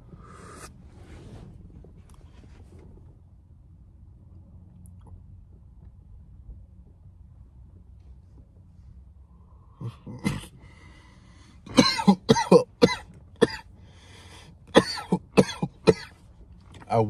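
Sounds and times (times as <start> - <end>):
wheezing breath: 0.0 - 0.8, 10.6 - 11.7, 13.8 - 14.6
man coughing: 9.8 - 10.6, 11.7 - 13.7, 14.7 - 16.2.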